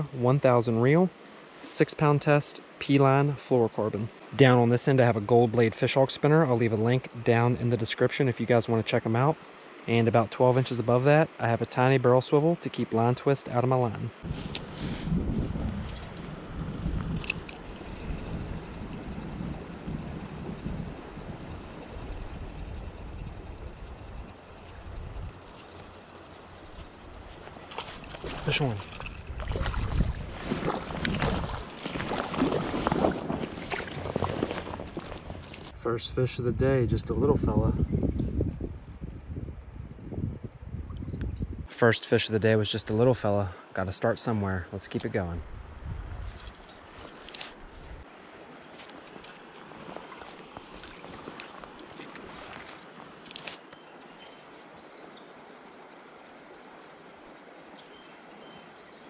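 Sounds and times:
creek water splashing: 1.2 - 35.8, 44.9 - 59.0
wind on microphone: 14.2 - 41.7, 45.4 - 48.1.

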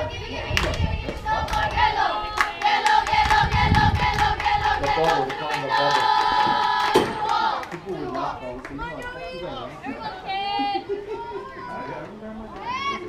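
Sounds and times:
group chanting a sung cheer: 0.0 - 8.5
people clapping: 0.5 - 9.0.

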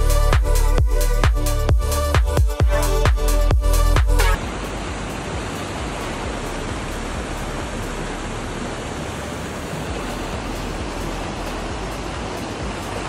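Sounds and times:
river rushing over boulders: 4.3 - 13.0.

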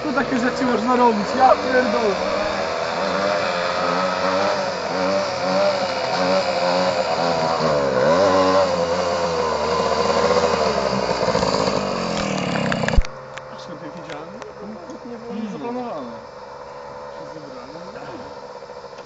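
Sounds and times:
moped engine running hard: 0.0 - 19.0.

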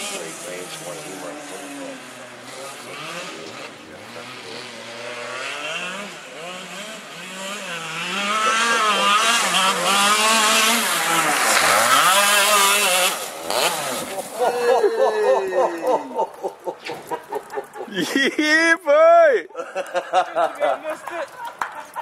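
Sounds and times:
go-kart engine revving: 0.0 - 17.5.

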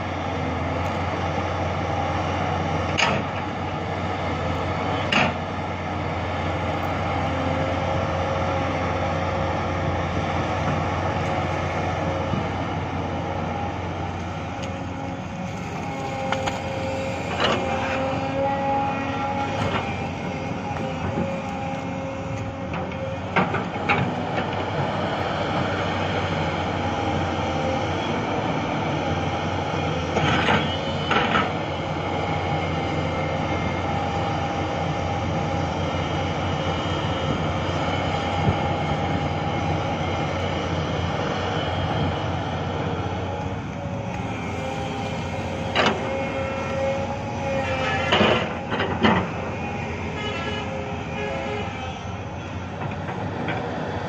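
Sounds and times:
excavator diesel engine whining: 0.0 - 54.0.

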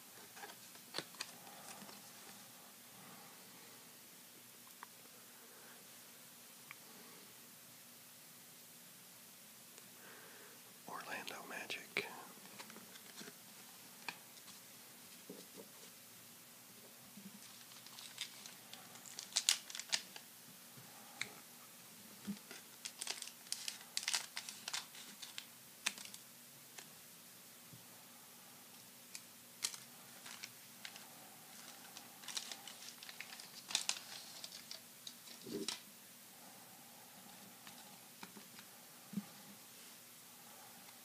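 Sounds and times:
cards being handled: 0.2 - 2.4, 22.4 - 26.2, 29.1 - 31.0, 31.6 - 35.8
foil pack crinkling and tearing: 17.4 - 20.2, 22.4 - 26.2, 29.6 - 35.8.

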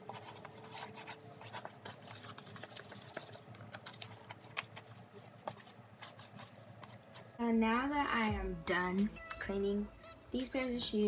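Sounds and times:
cloth scrubbing a sneaker: 0.0 - 7.4.

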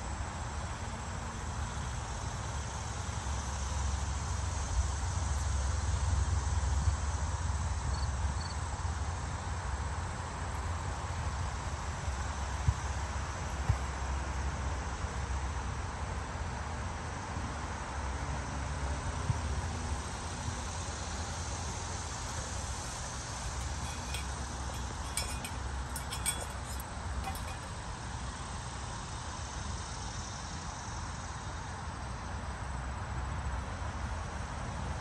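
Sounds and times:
light clinks: 22.2 - 27.8.

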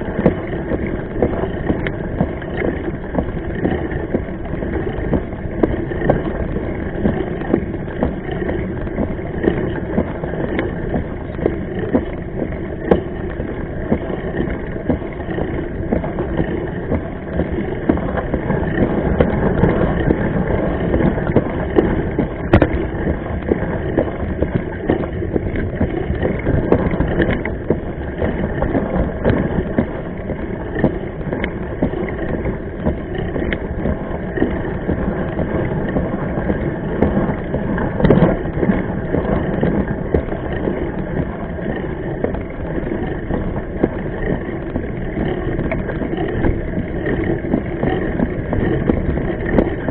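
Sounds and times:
tyre and wind rumble: 0.0 - 49.9.

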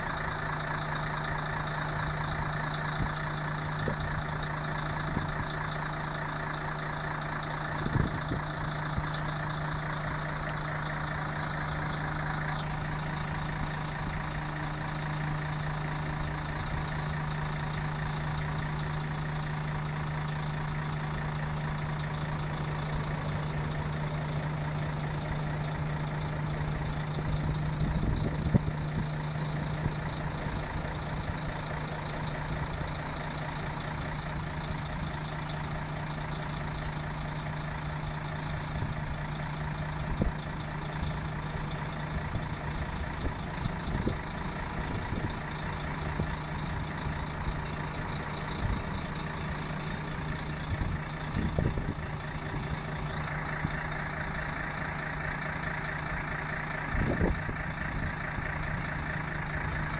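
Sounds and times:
crane machinery humming: 0.0 - 59.9.

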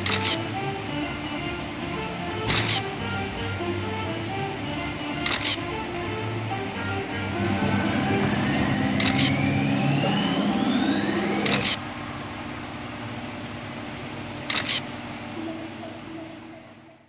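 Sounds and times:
camera shutter clicks: 0.0 - 0.4, 2.5 - 2.8, 5.2 - 5.6, 9.0 - 9.3, 14.5 - 14.9
background music: 0.0 - 11.9.

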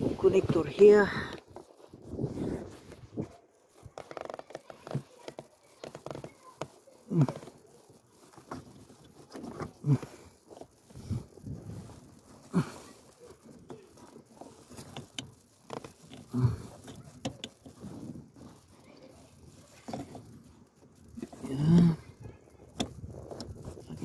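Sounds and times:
low grunt of effort: 12.4 - 13.0
hands clicking and tapping parts: 12.6 - 17.9.

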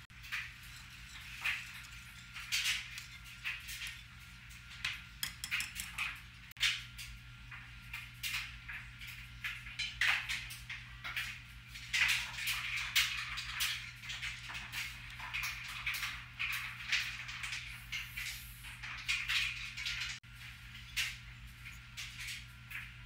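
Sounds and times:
whisk scraping a saucepan: 0.0 - 6.4
saucepan clinks and scrapes: 0.2 - 4.2.

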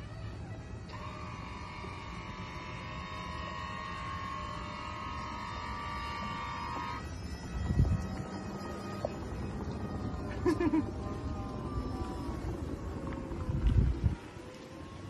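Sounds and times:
door motors whining: 0.0 - 15.0
low rumble: 7.0 - 15.0.

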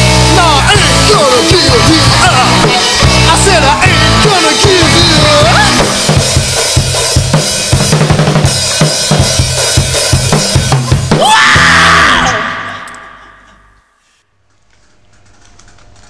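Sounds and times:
rapid snare and bass drum hits: 0.0 - 12.0
rock band playing: 0.0 - 13.7
person screaming into microphone: 11.2 - 13.8.

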